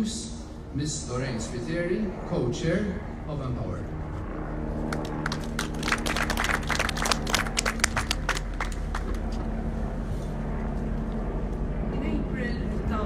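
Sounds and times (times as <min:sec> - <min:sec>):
low hum: 0:00.0 - 0:13.0
audience applauding: 0:04.9 - 0:09.4.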